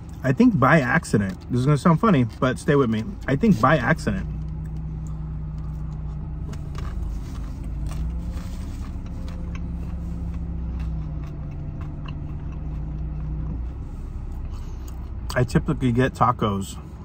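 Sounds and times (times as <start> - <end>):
car engine hum: 0.0 - 17.0
man chewing food: 4.3 - 15.4.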